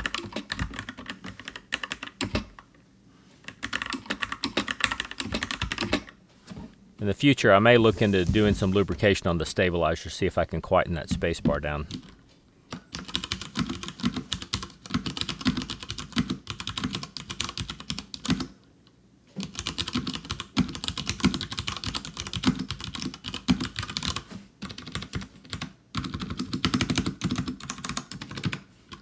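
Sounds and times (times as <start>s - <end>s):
mechanical keyboard typing: 0.0s - 2.7s, 3.4s - 6.2s, 12.8s - 18.6s, 19.4s - 29.0s.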